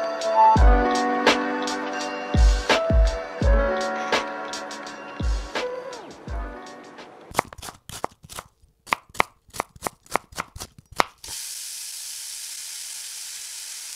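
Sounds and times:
food sizzling in hot pan: 11.2s - 13.9s.

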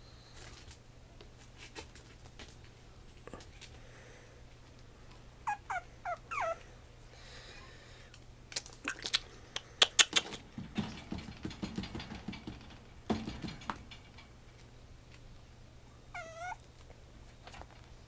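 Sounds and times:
puppy high squeaks: 5.4s - 6.6s, 16.1s - 16.6s.

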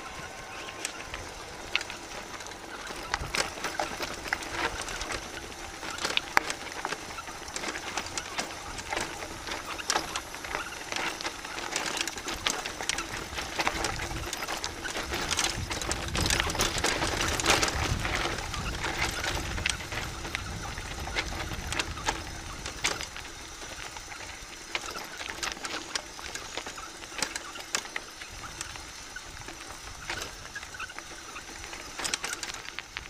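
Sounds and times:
bike rattling: 0.0s - 33.0s
tyres crunching on gravel: 0.0s - 33.0s
wind rumble on microphone: 13.1s - 23.2s.

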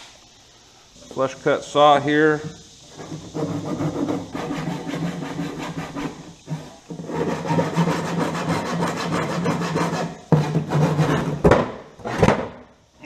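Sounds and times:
hand saw cutting wood: 3.0s - 12.4s.

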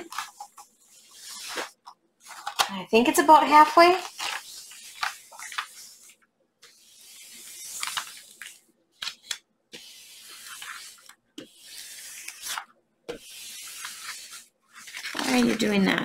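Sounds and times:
plastic sheet rustling: 0.0s - 6.1s, 13.3s - 16.0s.

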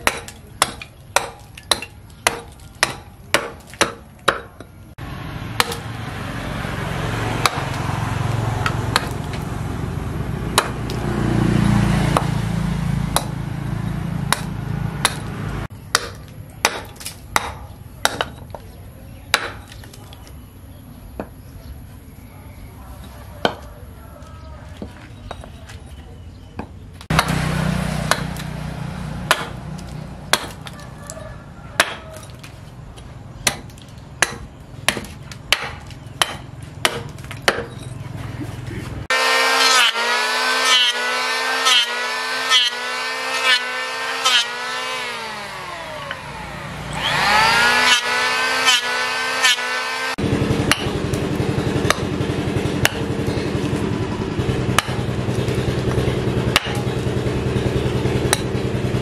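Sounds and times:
hatchet chopping wood: 0.0s - 4.8s, 5.5s - 6.0s, 7.3s - 7.9s, 8.6s - 9.6s, 10.4s - 11.2s, 12.0s - 18.7s, 19.3s - 20.0s, 23.4s - 23.7s, 26.6s - 31.2s, 31.8s - 38.0s, 39.1s - 46.3s, 46.9s - 53.9s, 54.6s - 57.1s, 58.2s - 58.7s
electric hand planer whining: 39.1s - 54.5s.

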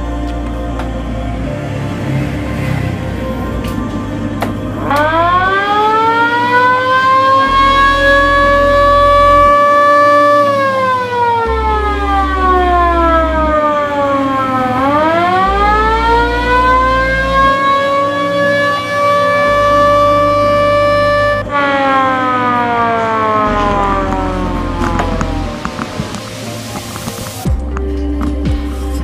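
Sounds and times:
ambulance siren wailing: 0.9s - 27.4s.

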